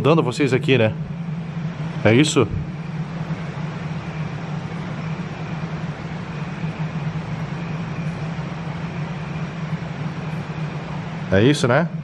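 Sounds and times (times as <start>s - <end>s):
low choppy hum: 0.0s - 12.0s.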